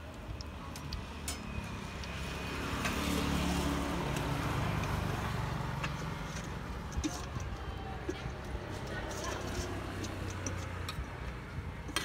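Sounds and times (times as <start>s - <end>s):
vehicle engine passing: 1.5s - 7.4s.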